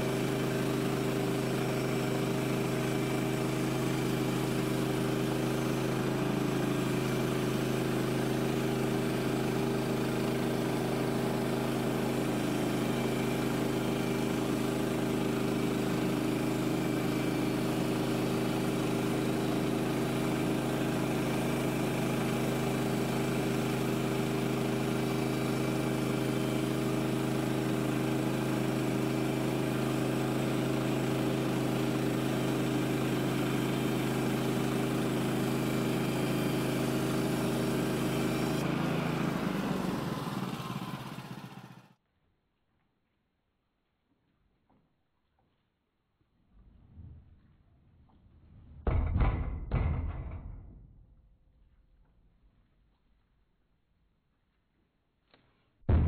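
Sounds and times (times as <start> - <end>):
band sawmill running: 0.0 - 42.0.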